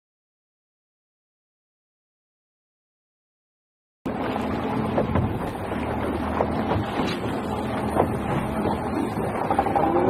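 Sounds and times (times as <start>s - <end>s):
outboard engine running: 4.1s - 10.0s
sea washing around hull: 4.1s - 10.0s.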